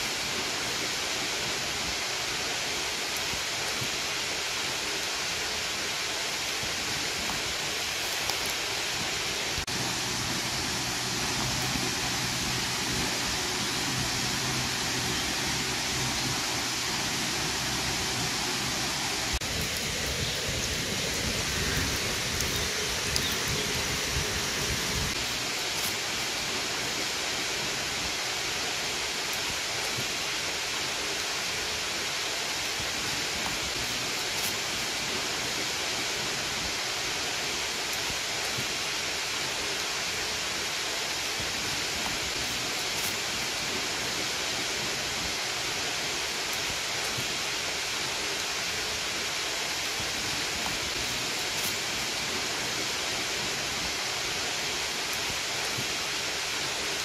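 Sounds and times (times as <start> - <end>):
steady rain falling: 0.0 - 57.0.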